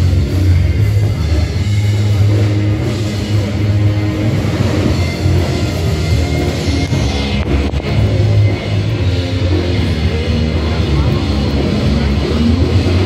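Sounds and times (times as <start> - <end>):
rock music: 0.0 - 13.0.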